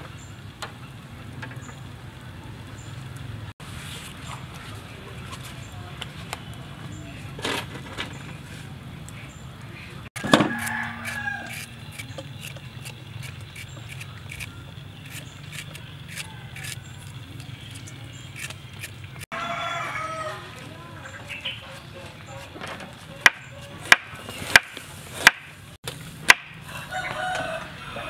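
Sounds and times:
charcoal grill crackling: 7.2 - 20.2
hand shredder scraping fruit: 10.5 - 19.3.

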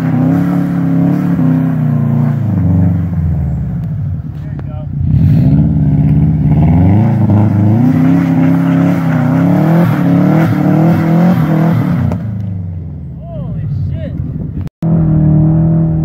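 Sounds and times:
car engine revving hard: 0.0 - 3.5, 5.0 - 12.5.

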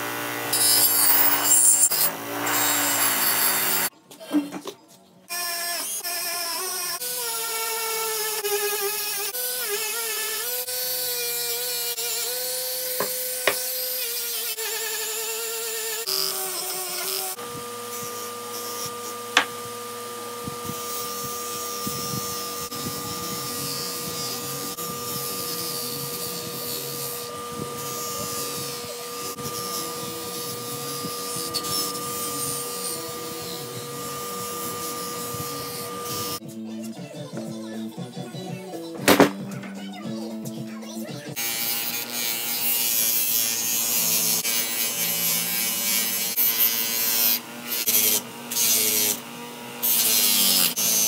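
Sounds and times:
bench buffer motor humming: 0.0 - 3.9, 7.1 - 36.4
rotary tool whining on metal: 0.0 - 3.9, 5.3 - 36.4, 41.0 - 51.0.

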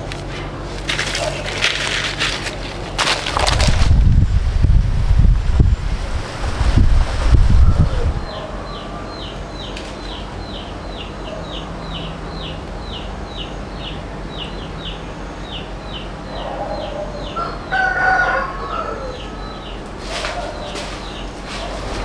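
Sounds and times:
rooster crowing: 16.7 - 19.7.

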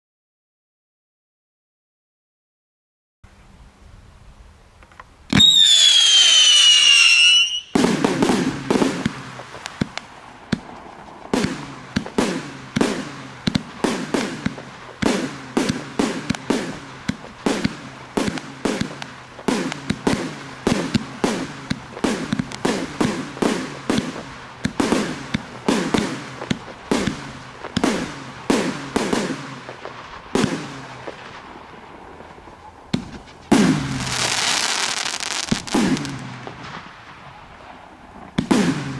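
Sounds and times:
firework whistle falling in pitch: 5.3 - 7.8
firework shots banging: 5.3 - 38.9.

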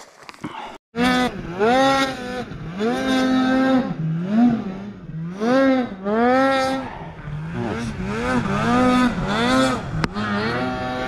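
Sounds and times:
snowmobile engine revving: 1.0 - 11.0.

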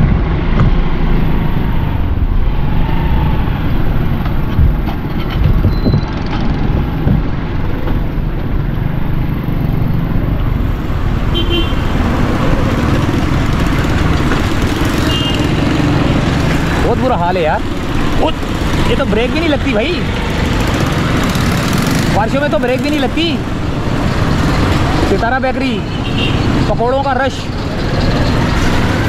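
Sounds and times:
motorcycle engine rumble: 0.0 - 25.2
street traffic: 0.0 - 29.0
vehicle horn tooting: 11.3 - 11.9, 15.0 - 15.6, 25.9 - 26.5.

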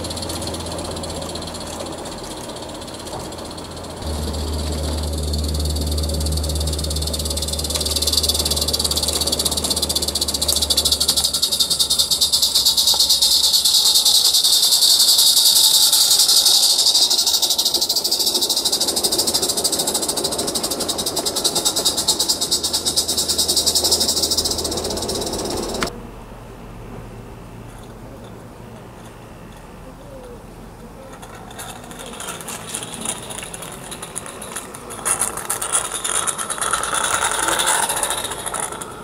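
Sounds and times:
steam locomotive exhaust chuffs: 0.0 - 25.9, 31.2 - 39.0
loud steam hiss: 3.9 - 25.9.

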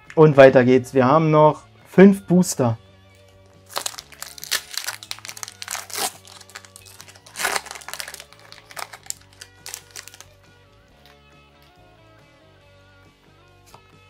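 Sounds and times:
soft background music: 0.0 - 14.0
foil pack crinkling: 3.6 - 10.3.

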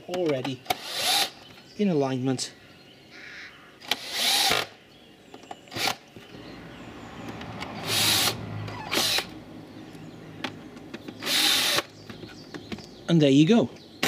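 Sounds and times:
cordless drill driving screws: 0.7 - 1.4, 3.9 - 4.7, 7.6 - 9.3, 11.2 - 11.9.

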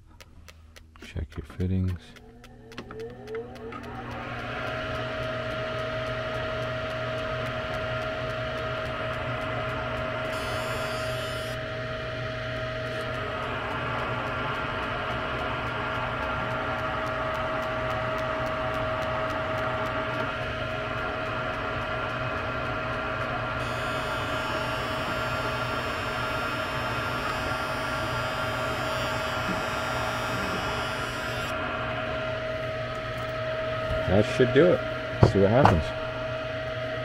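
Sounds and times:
fast even ticking: 0.0 - 10.1
gas detector humming: 0.0 - 37.0.

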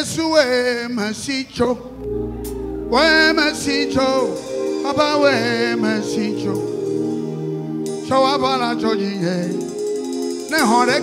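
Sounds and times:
person singing gospel: 0.1 - 11.0
low bass: 1.6 - 6.6
sustained keyboard chords: 1.7 - 11.0.

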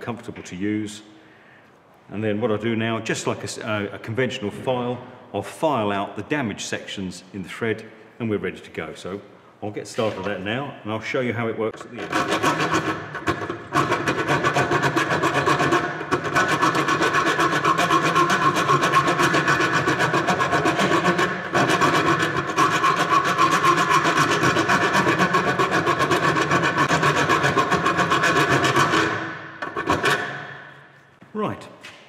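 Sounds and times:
thread file rasping on metal: 12.0 - 30.4.

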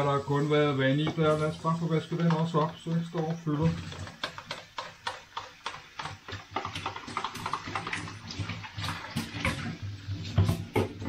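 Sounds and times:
pot being scrubbed: 0.0 - 11.0
tap running into metal sink: 1.0 - 11.0
pot knocking against sink: 10.3 - 11.0.

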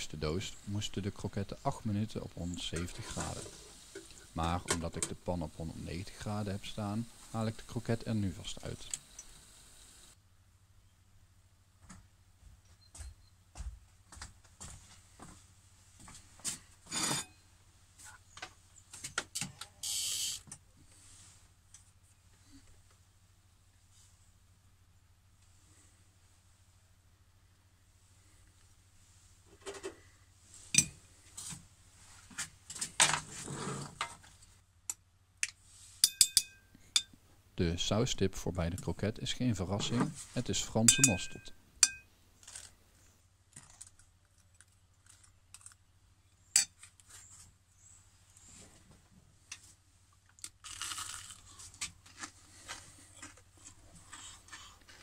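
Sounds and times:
metal spoon clinking on glass jar: 36.0 - 37.1, 40.9 - 42.1
man crunching fried food: 50.2 - 53.5.

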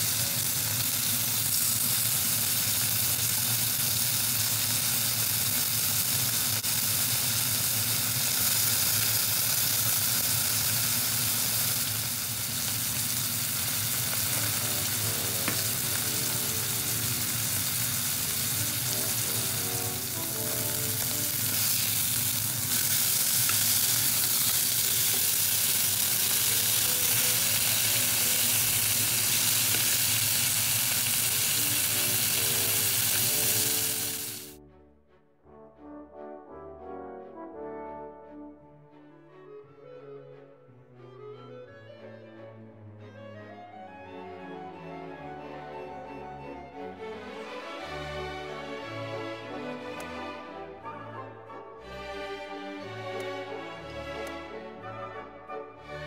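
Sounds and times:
steaks sizzling in a pan: 0.0 - 34.6
faint melody: 13.1 - 56.0.

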